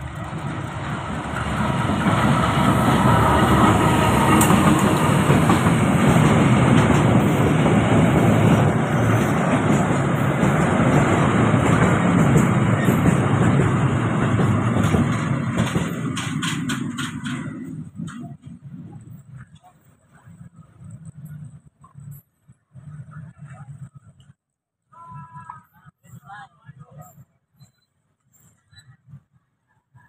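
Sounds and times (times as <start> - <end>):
diesel locomotive passing: 0.0 - 24.0
train wheels rolling on rails: 0.0 - 24.4.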